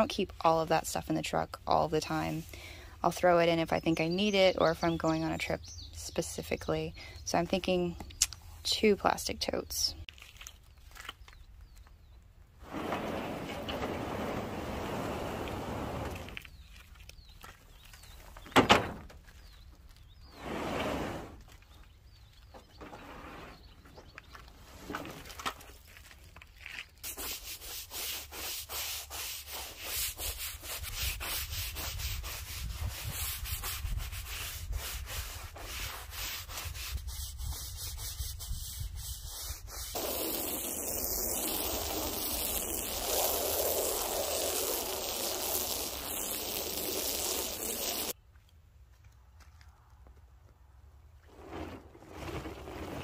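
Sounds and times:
hose spraying water: 12.7s - 16.4s, 40.0s - 48.2s.

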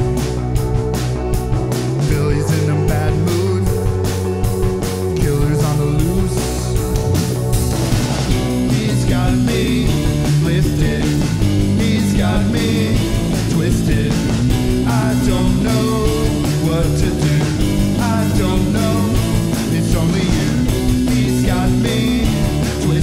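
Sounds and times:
bass guitar: 0.0s - 23.0s
drums: 0.0s - 23.0s
electric guitar: 0.0s - 23.0s
person singing: 1.9s - 7.5s, 8.3s - 23.0s.

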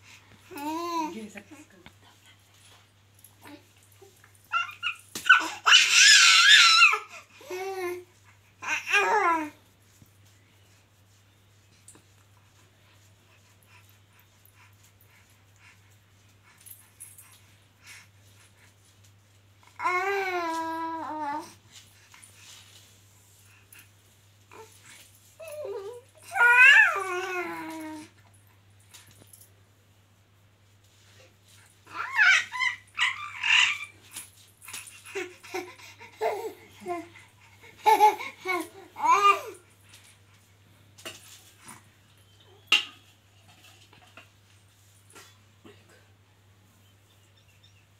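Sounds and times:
soft baby vocal sounds: 0.0s - 28.3s, 31.1s - 40.3s
baby squealing: 4.5s - 7.1s, 31.9s - 34.0s.

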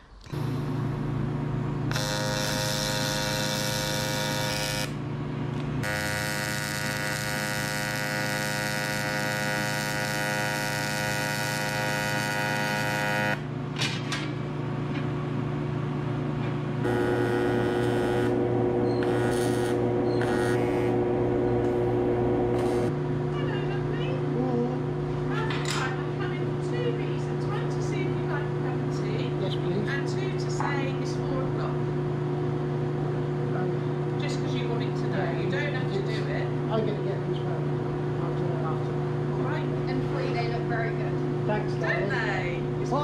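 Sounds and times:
welding arc buzzing: 0.0s - 13.8s, 16.6s - 23.0s
constant hum: 0.0s - 43.0s.

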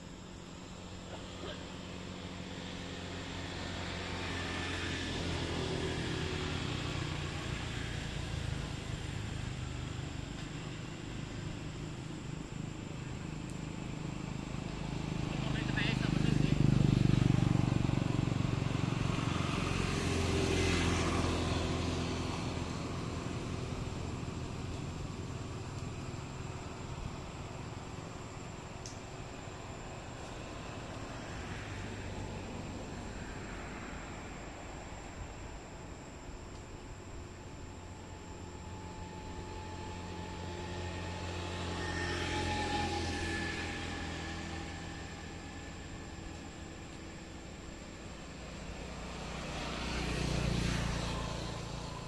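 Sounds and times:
motor passing by: 37.4s - 52.0s.

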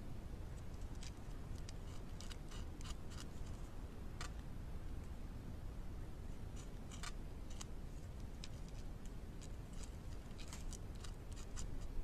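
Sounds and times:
low steady rumble: 0.0s - 12.0s
beaver gnawing wood: 0.5s - 4.4s, 6.6s - 12.0s.

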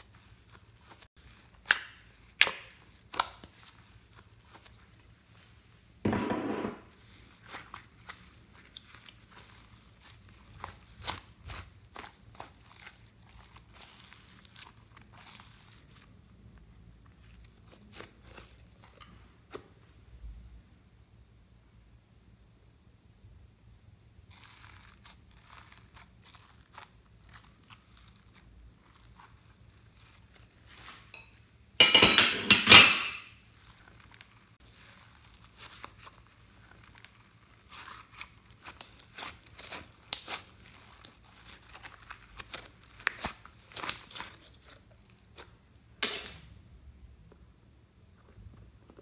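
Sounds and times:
slime crackling and squelching: 0.0s - 6.0s, 6.8s - 19.6s, 24.1s - 31.7s, 33.4s - 46.0s
slime tearing rasp: 33.7s - 45.5s.

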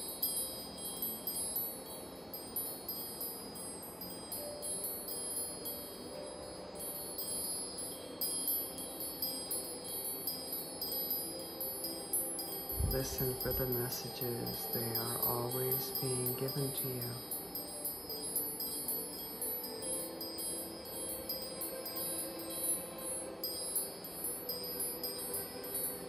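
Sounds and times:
wind chimes ringing: 0.0s - 26.0s.

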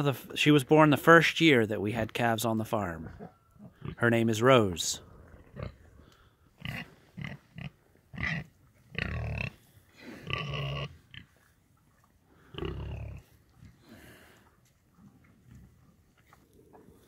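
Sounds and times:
pig grunting: 3.0s - 4.0s, 5.0s - 6.0s, 6.6s - 11.4s, 12.4s - 14.3s.

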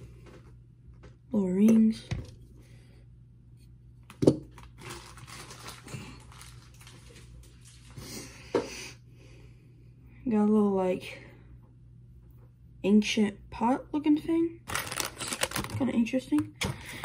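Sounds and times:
plastic packaging rustling: 4.5s - 8.0s, 14.6s - 16.2s.

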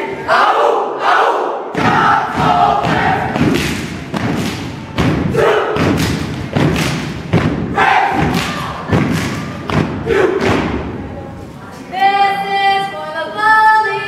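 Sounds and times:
dancers stomping heavy thuds: 1.8s - 10.9s.

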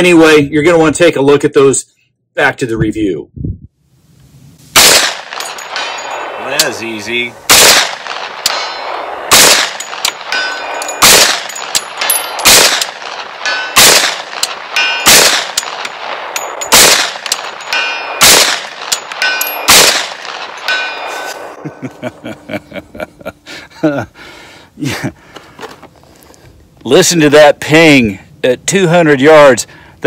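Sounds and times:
carbine gunshots: 4.8s - 21.6s.

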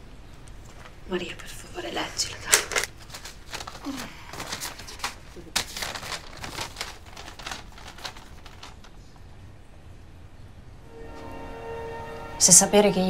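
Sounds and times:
paper rustling and crinkling: 0.6s - 1.5s, 2.2s - 9.2s.

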